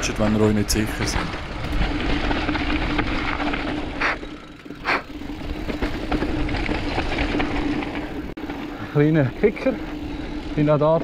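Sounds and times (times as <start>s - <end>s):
bike tyres rumbling on dirt: 0.0s - 11.0s
steady whirring tone: 0.0s - 11.0s.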